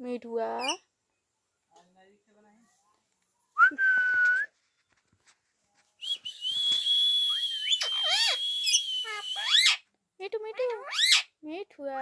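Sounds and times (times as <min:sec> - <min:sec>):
parakeet rising and falling calls: 0:07.3 - 0:09.8, 0:10.8 - 0:11.3
parakeet whistling: 0:07.3 - 0:09.8.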